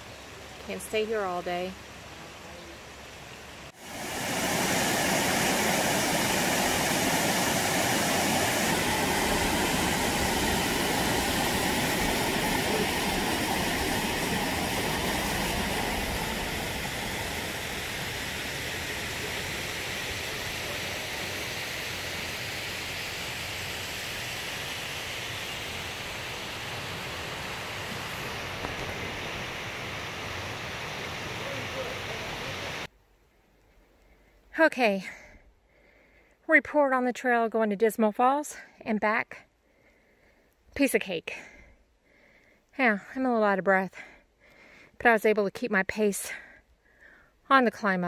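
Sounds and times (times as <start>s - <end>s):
small waterfall rushing: 0.0s - 32.9s.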